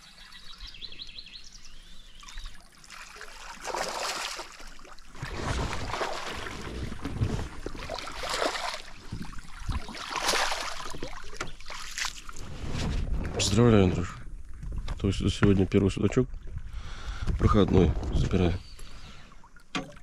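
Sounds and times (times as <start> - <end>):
fish splashing at the surface: 2.2 - 12.4.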